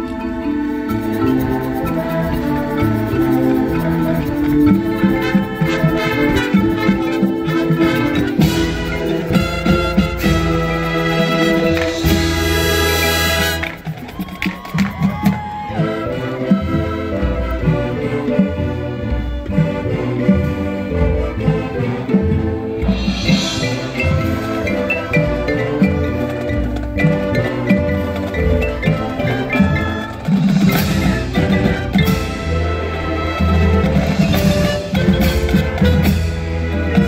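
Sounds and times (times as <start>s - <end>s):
marching band playing: 0.0s - 37.0s
marimbas playing quick notes: 22.7s - 37.0s.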